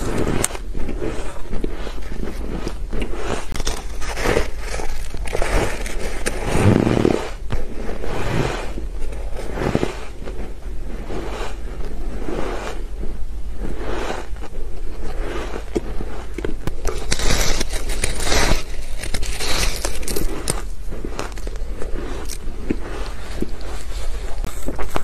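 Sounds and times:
chewing shaved ice: 0.0s - 7.2s, 13.6s - 25.0s.

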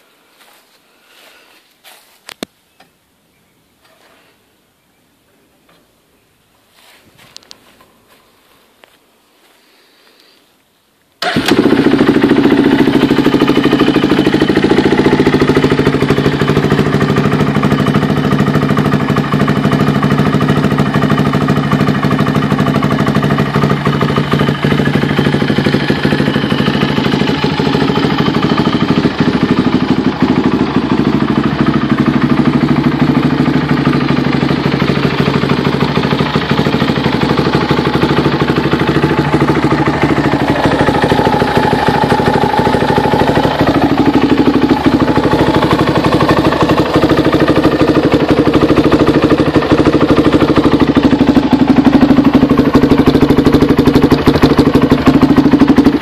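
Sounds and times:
quad engine idling: 11.2s - 56.0s.

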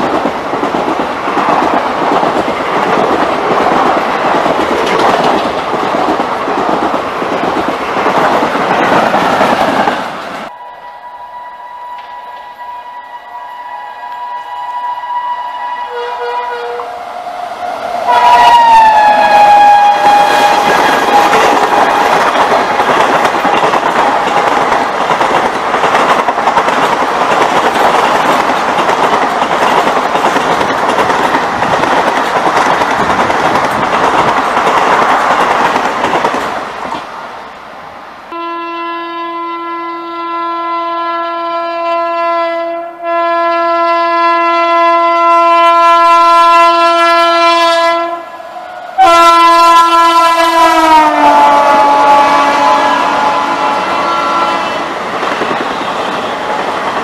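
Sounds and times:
train coaches rushing past: 0.0s - 38.4s, 46.6s - 57.0s
train horn: 10.5s - 22.2s, 38.3s - 54.9s.

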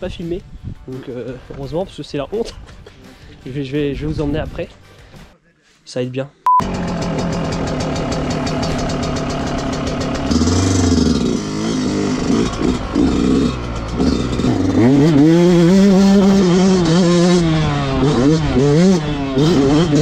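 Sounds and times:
two-stroke motorbike engine revving: 6.6s - 20.0s.

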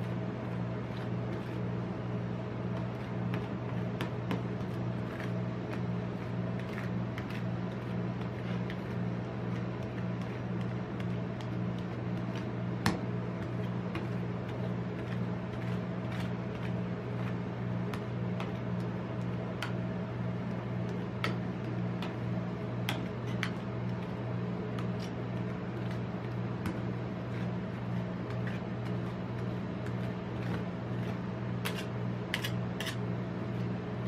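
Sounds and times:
metal spatulas scraping ice cream: 0.0s - 1.7s, 2.8s - 12.6s, 13.4s - 18.7s, 24.8s - 26.4s, 27.2s - 33.7s
steady low hum: 0.0s - 34.0s.

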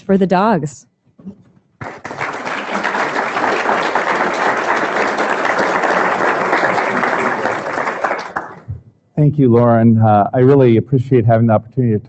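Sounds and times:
audience applauding: 1.8s - 8.7s.

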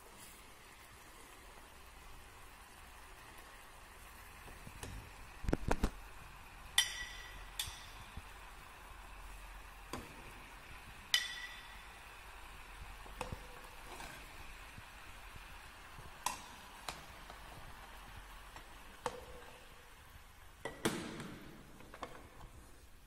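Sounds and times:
ladle clinking against metal pan: 11.1s - 11.8s.

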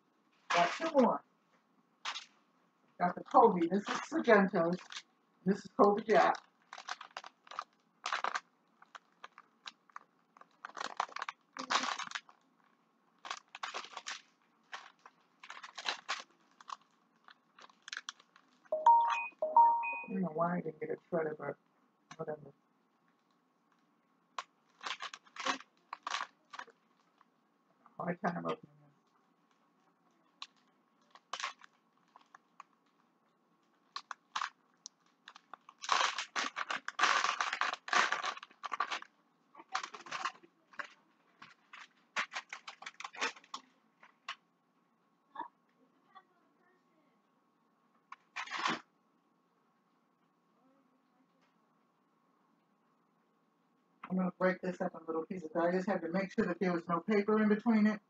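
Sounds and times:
plastic package crinkling: 0.5s - 1.0s, 2.0s - 2.4s, 3.2s - 5.1s, 5.9s - 19.0s, 24.4s - 27.3s, 30.3s - 33.0s, 33.6s - 44.4s, 48.1s - 48.8s.

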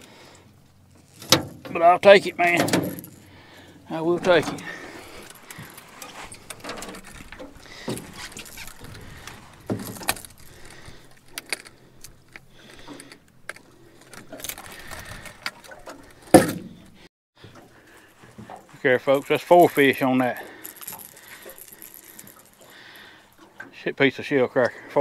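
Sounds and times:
fishing tackle clicks and rattles: 0.8s - 16.4s, 18.4s - 23.8s.

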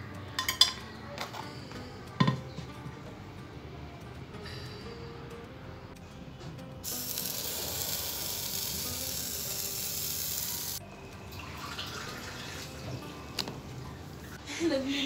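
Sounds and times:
batter sizzling on hot plates: 6.8s - 11.3s.

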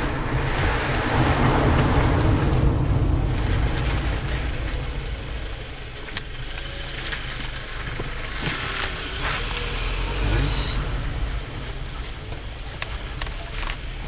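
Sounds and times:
car engine and tyre rumble: 0.0s - 14.0s
rush of hiss: 8.2s - 11.6s.

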